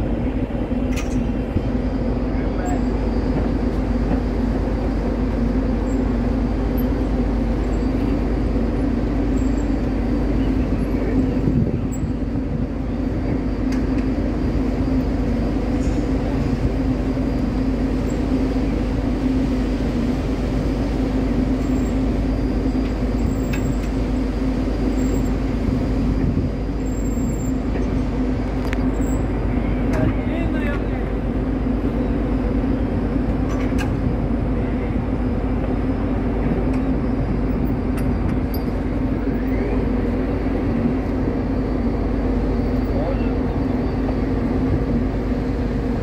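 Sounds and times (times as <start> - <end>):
ship engines droning: 0.0 - 46.0.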